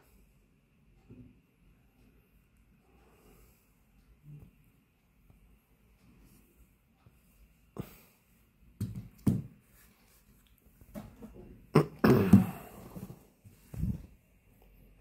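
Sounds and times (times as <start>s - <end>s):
devices knocking on desk mat: 8.8s - 9.6s.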